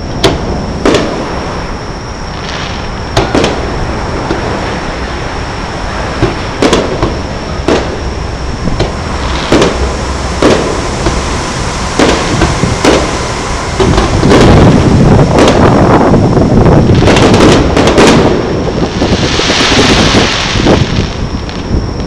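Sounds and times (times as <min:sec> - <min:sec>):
fireworks bangs: 0:00.0 - 0:22.0
fireworks crackles: 0:00.0 - 0:22.0
hissing crackle: 0:00.0 - 0:22.0.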